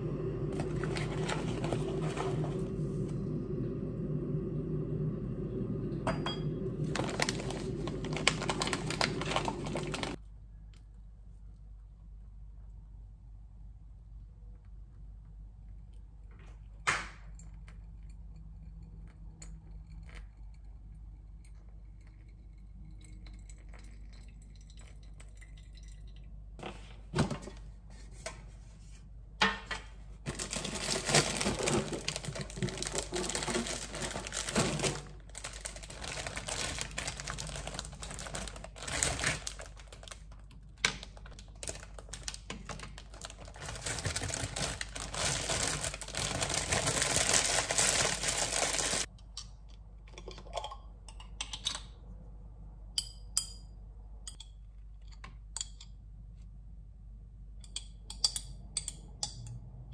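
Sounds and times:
plastic bag crinkling: 6.8 - 10.2, 30.3 - 49.1.

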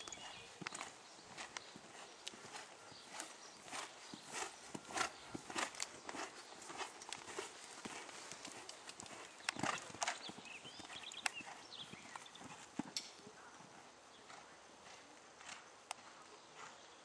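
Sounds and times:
horse hoofbeats on sand: 0.0 - 13.0.

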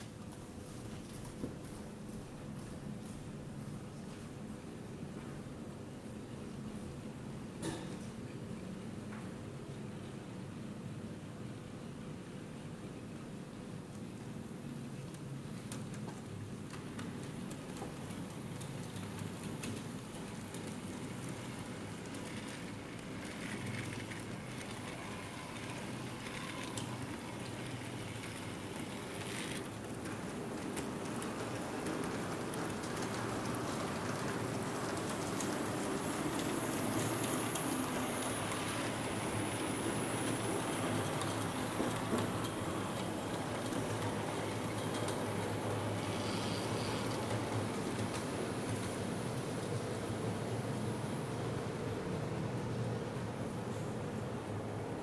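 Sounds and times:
light clicks and patter: 15.0 - 45.7
model train hum: 16.7 - 55.0
wheels rumbling on rails: 16.8 - 55.0.

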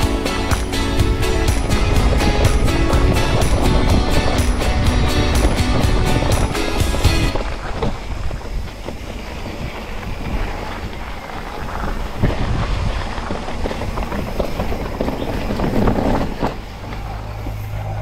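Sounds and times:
bike rattling and knocking: 0.0 - 17.7
wind rushing on microphone: 0.0 - 18.0.

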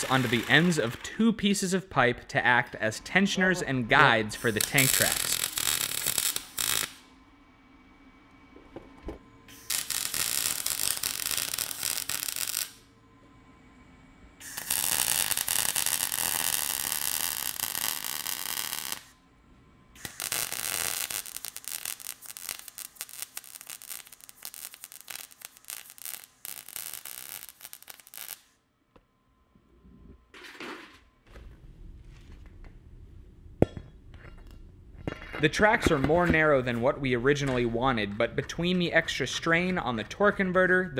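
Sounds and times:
welder arc crackling: 0.0 - 1.2, 4.1 - 7.1, 9.5 - 12.8, 14.4 - 19.1, 20.0 - 28.5.

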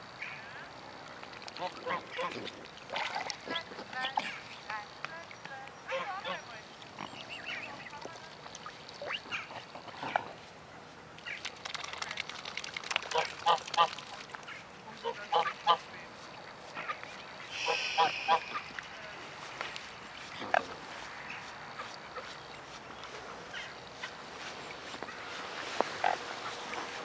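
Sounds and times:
swans and ducks calling: 1.3 - 10.5, 13.0 - 27.0
swan hiss: 17.4 - 19.1.

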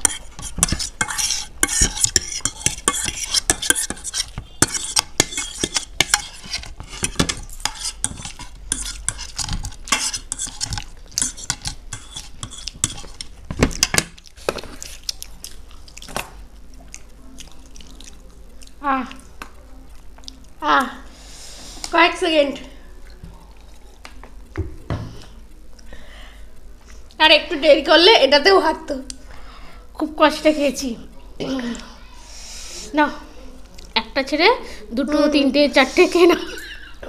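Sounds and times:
forks clinking and scraping plates: 0.0 - 14.0.

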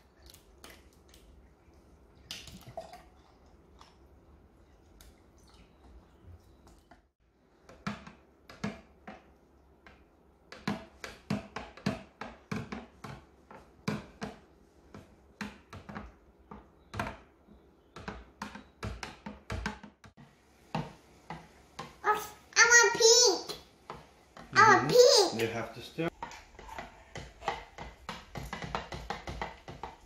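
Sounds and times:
spatula knocking against pitcher: 26.1 - 30.0.

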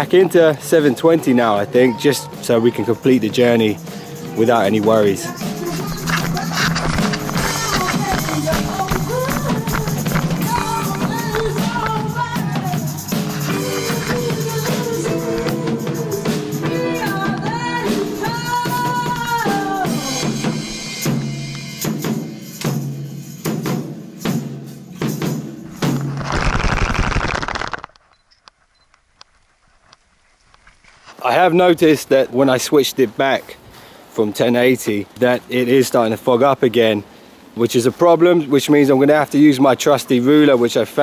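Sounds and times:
background music with steady beat: 0.8 - 25.8.

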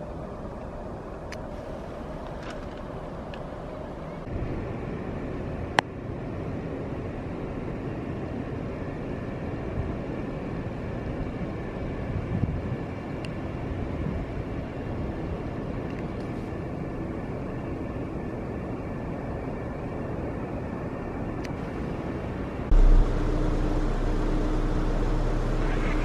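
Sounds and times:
low outdoor rumble: 0.0 - 26.0.

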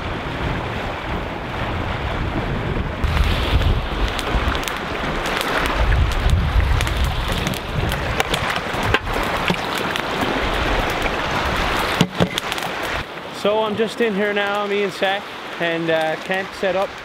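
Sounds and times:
wind buffeting microphone: 0.0 - 13.1.

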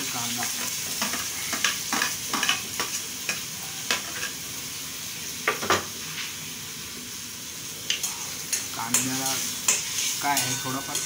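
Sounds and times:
onion sizzling in hot oil: 0.0 - 11.0
spatula scraping and clinking pan: 8.0 - 11.0.

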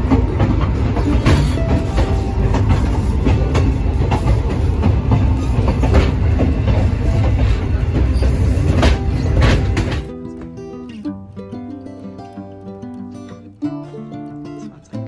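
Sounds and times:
train rumbling on track: 0.0 - 10.1
wheels clacking over rail joints: 0.0 - 11.1.

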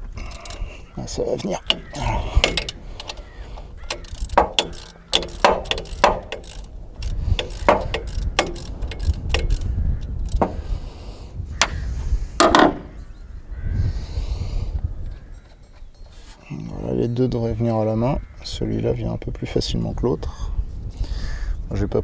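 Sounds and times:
ratchet wrench clicking: 0.0 - 0.7, 1.6 - 10.6.

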